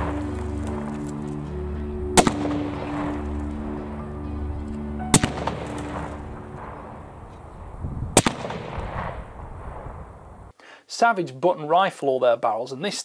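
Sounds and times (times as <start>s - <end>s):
rifle shots with echo: 2.2s - 3.3s, 5.1s - 7.4s, 8.2s - 10.2s.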